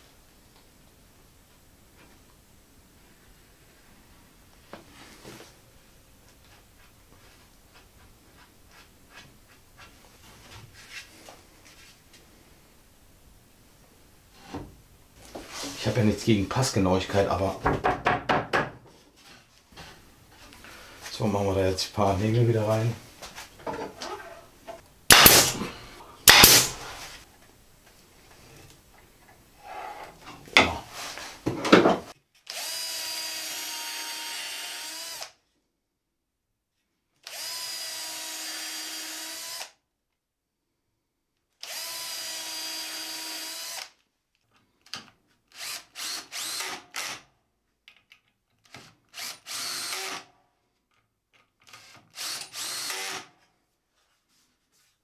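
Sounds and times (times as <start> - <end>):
loud knocks: 17.6 - 18.8
cordless drill drilling into wood: 25.1 - 25.7, 26.3 - 26.8, 32.5 - 35.4, 37.2 - 39.8, 41.6 - 44.0, 45.5 - 47.2, 49.1 - 50.3, 51.7 - 53.3.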